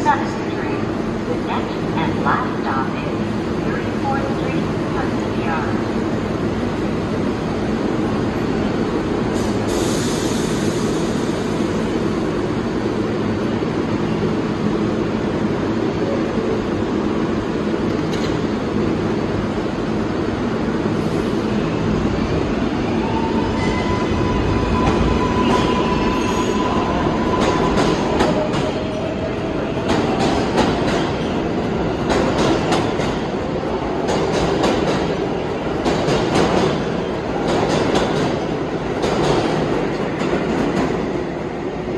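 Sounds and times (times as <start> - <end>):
subway train rumbling: 0.0 - 41.9
train wheels squealing: 23.1 - 28.2.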